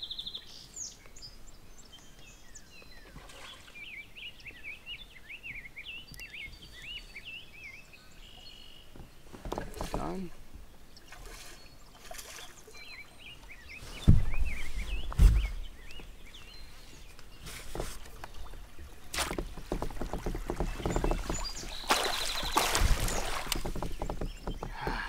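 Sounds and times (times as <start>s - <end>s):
heavy thumps against kayak: 9.0s - 10.3s, 13.9s - 16.1s, 17.5s - 25.0s
fish splashing and thrashing: 11.0s - 12.8s, 17.4s - 25.0s.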